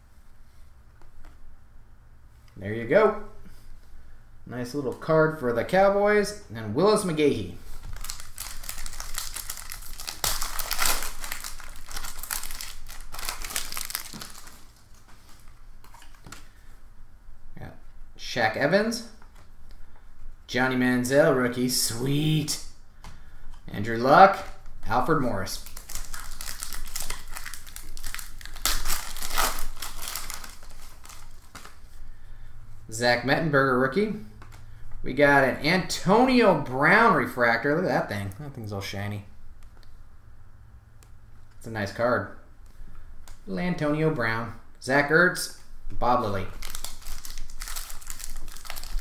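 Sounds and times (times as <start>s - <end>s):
foil wrapper tearing and crinkling: 7.8s - 16.2s, 25.5s - 31.9s, 46.5s - 49.0s.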